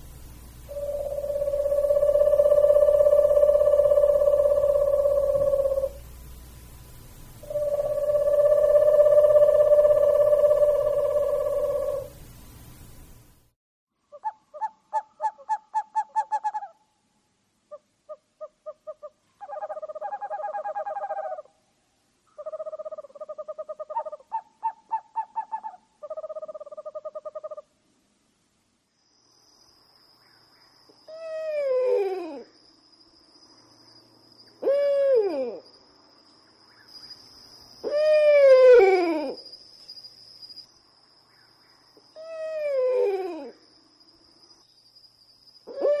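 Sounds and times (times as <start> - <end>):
faint high whine: 0.0 - 13.6, 27.8 - 46.0
owl hooting: 0.6 - 6.0, 7.4 - 12.2, 14.1 - 16.8, 17.7 - 21.6, 22.3 - 27.7, 31.0 - 32.5, 34.5 - 35.6, 37.8 - 39.5, 42.1 - 43.6, 45.6 - 46.0.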